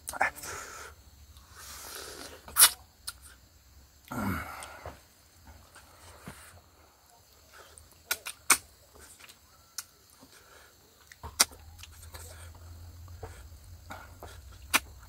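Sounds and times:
mouth clicks and smacks: 1.4s - 3.4s, 7.8s - 9.9s, 11.0s - 15.0s
person chewing food: 7.6s - 15.0s.

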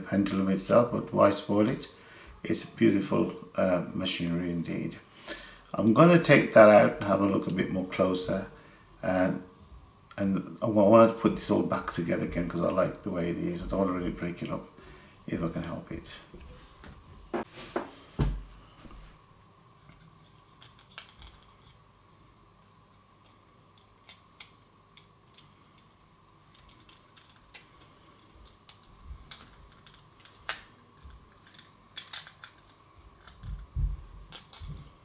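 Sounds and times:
plastic parts clicking and tapping: 26.5s - 33.7s, 34.3s - 34.9s.

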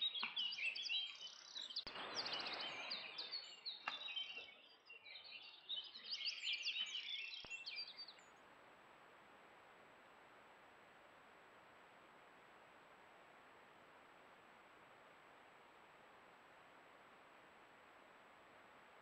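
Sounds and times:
songbirds singing: 0.0s - 8.6s
faint steady hiss: 0.0s - 19.0s.

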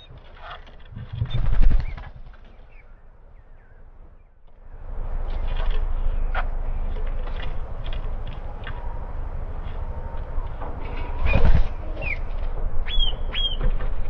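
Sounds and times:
wind buffeting microphone: 0.0s - 2.4s, 5.8s - 14.0s.

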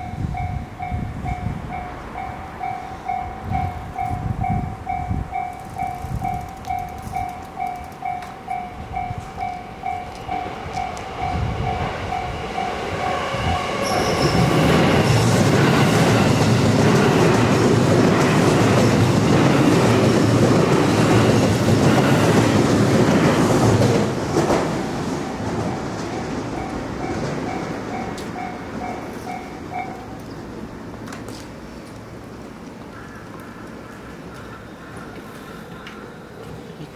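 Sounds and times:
level-crossing bell ringing: 0.0s - 16.0s, 26.2s - 30.2s
electric train passing: 0.0s - 36.9s.

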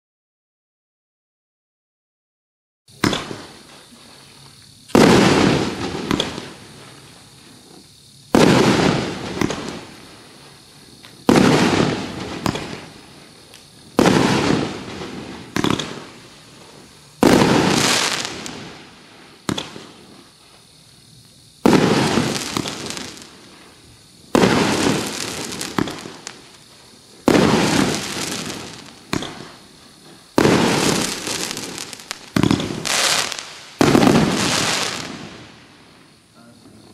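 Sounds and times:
firework shells banging: 4.9s - 7.0s, 7.6s - 18.8s, 19.4s - 20.5s, 21.6s - 35.4s.

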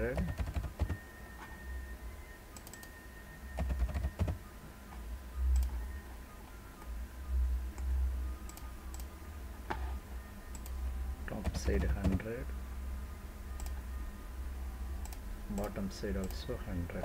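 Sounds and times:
faint high whine: 0.0s - 17.0s
keyboard keystrokes: 0.1s - 1.0s, 3.6s - 4.4s, 11.4s - 12.2s.

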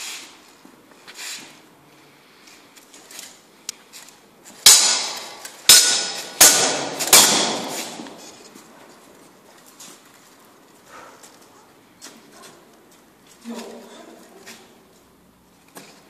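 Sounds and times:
swords clashing: 4.6s - 8.4s.

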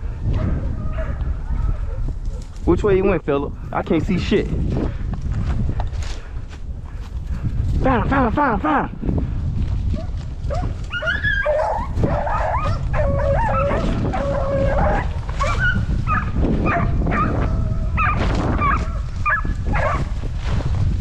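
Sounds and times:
wind rumble on microphone: 0.0s - 21.0s
hounds baying and howling: 0.2s - 2.6s, 10.0s - 20.1s
dogs yipping: 10.0s - 20.1s.

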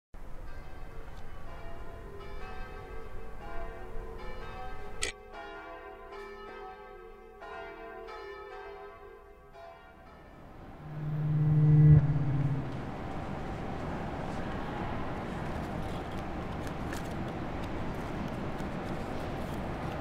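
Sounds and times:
low rumble: 10.4s - 14.4s
bell-like tones: 10.5s - 13.3s
sharp hit: 10.6s - 13.2s.

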